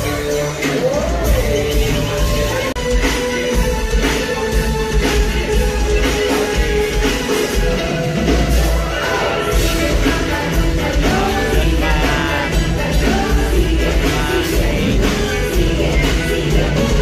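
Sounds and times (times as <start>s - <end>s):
live band playing: 0.0s - 17.0s
women singing: 8.9s - 17.0s.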